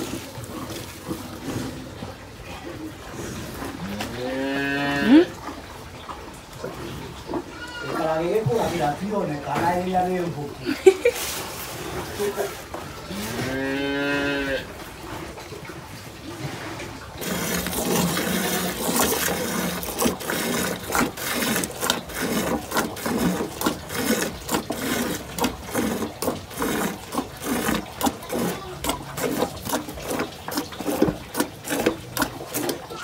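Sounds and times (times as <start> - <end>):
milk squirting into pail: 16.2 - 33.0.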